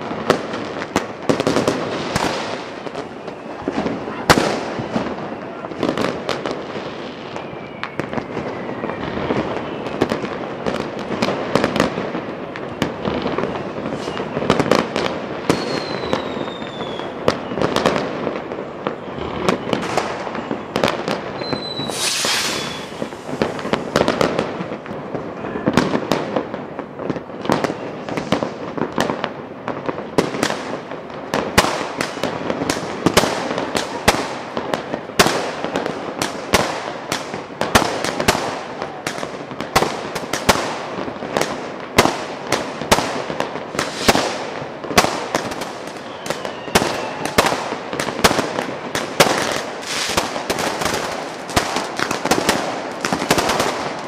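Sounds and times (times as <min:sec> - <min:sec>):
fireworks crackling and banging: 0:00.0 - 0:54.0
falling firework whistles: 0:01.5 - 0:05.6, 0:06.8 - 0:10.2, 0:12.6 - 0:14.8, 0:15.4 - 0:18.0, 0:18.7 - 0:24.3, 0:27.7 - 0:28.6, 0:43.7 - 0:44.6, 0:45.3 - 0:48.1.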